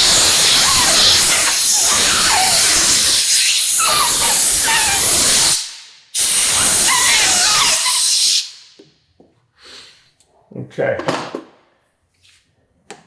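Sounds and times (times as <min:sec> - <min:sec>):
compressed air hissing and squealing: 0:00.0 - 0:08.6.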